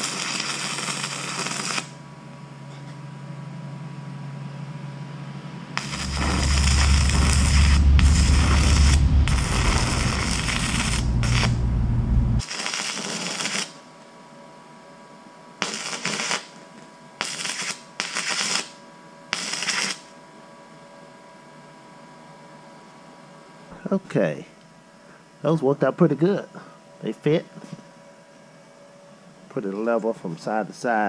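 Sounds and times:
welding arc crackling: 0.0 - 2.0, 5.8 - 13.8, 15.6 - 16.5, 17.2 - 18.7, 19.4 - 20.0
deep rumble: 5.8 - 12.4.

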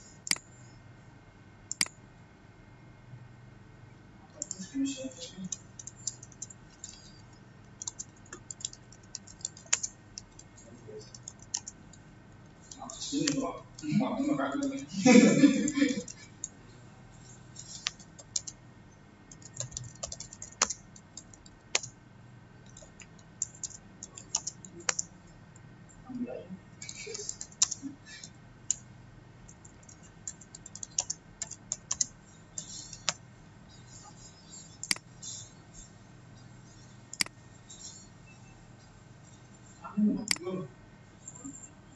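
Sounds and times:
keyboard typing: 0.2 - 0.5, 1.7 - 2.0, 4.4 - 16.6, 17.2 - 18.6, 19.3 - 22.0, 22.6 - 25.7, 26.8 - 38.4.

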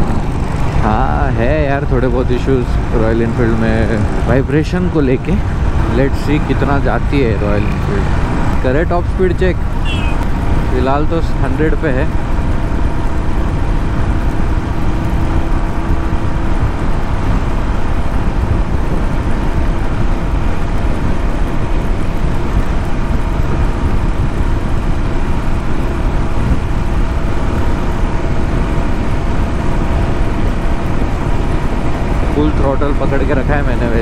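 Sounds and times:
wind rushing: 0.0 - 11.4
motorcycle engine at full throttle: 0.0 - 34.0.

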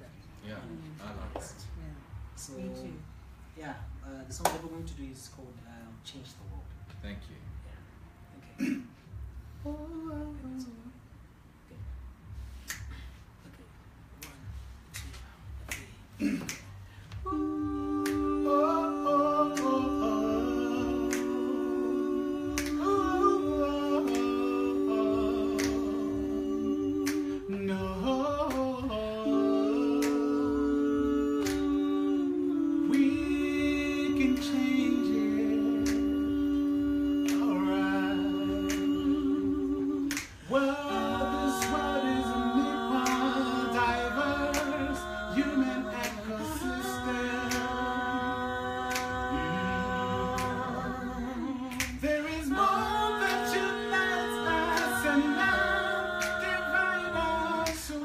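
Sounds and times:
finger snaps: 12.5 - 13.6, 14.2 - 17.3, 18.0 - 18.3, 21.1 - 21.4, 22.5 - 22.9, 25.5 - 25.9, 27.0 - 27.4, 30.0 - 30.3, 31.4 - 31.8, 35.8 - 36.1, 37.2 - 37.5, 40.0 - 40.5, 51.7 - 52.0
voices singing in harmony: 14.1 - 58.0.

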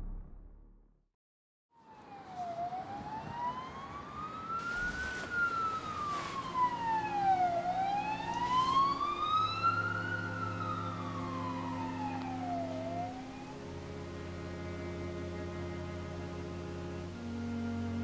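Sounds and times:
siren wailing: 1.8 - 18.0
low steady hum: 4.6 - 18.0.

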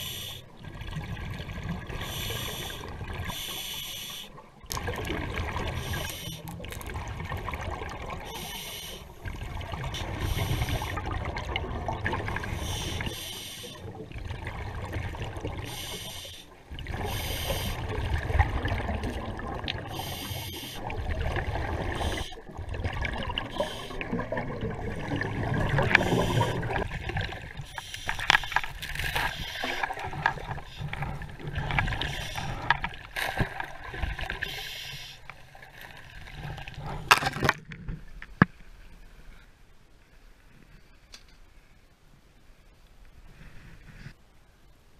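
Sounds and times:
regulator hiss on inhale: 0.0 - 0.5, 2.0 - 4.4, 5.8 - 6.5, 8.3 - 9.2, 10.1 - 11.0, 12.5 - 13.9, 15.6 - 17.8, 19.9 - 20.9, 23.5 - 24.0, 25.9 - 26.7, 27.6 - 29.9, 32.0 - 32.8, 34.4 - 35.3
bubbling exhaled air: 4.7 - 35.1.

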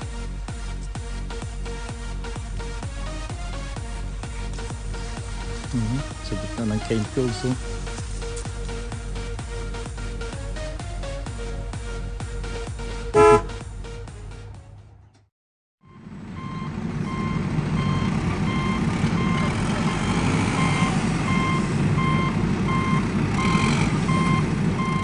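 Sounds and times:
electronic music: 0.0 - 14.5
heavy vehicle engine running: 0.0 - 25.0
reversing beeper: 15.8 - 25.0.

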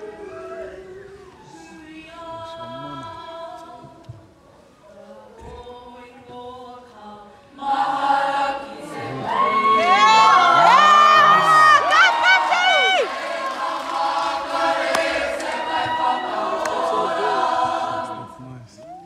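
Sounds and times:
group singing unaccompanied: 0.0 - 11.6, 12.4 - 18.5
audience cheering: 9.2 - 18.0.

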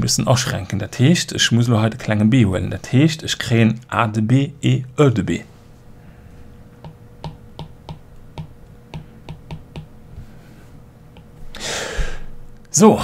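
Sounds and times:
stylus tapping on tablet screen: 6.8 - 9.9.

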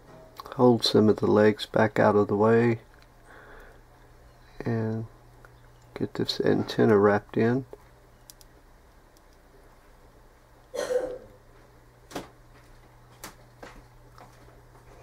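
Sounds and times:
steady low hum: 0.0 - 15.0
sharp little clicks: 8.3 - 8.5.

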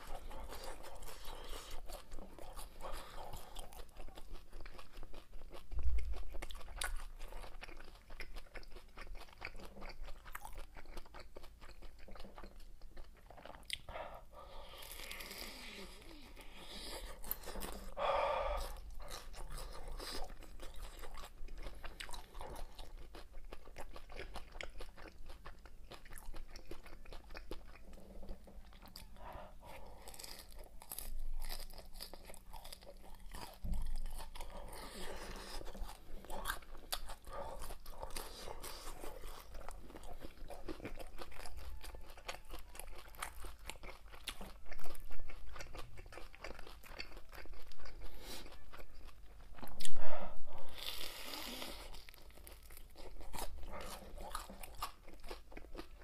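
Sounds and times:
chewing crunchy fried food: 0.0 - 56.0.

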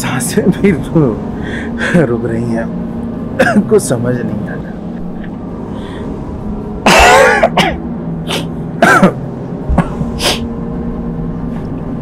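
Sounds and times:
man coughing: 3.4 - 3.7, 6.8 - 10.4.

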